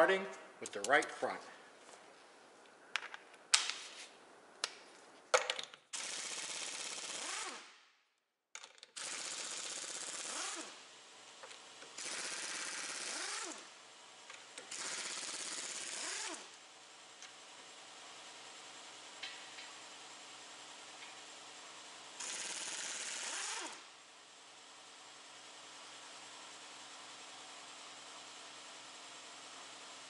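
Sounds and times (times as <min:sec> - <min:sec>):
pneumatic impact wrench hammering: 0:05.9 - 0:07.8, 0:08.9 - 0:10.8, 0:11.4 - 0:13.7, 0:14.3 - 0:16.6, 0:22.2 - 0:23.9
impact wrench winding down whine: 0:06.0 - 0:07.8, 0:09.0 - 0:16.6, 0:22.2 - 0:23.9.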